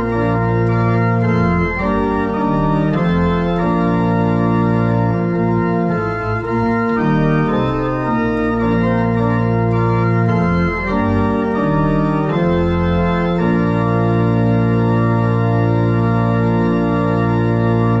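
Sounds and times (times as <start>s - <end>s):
pipe organ chords: 0.0s - 18.0s.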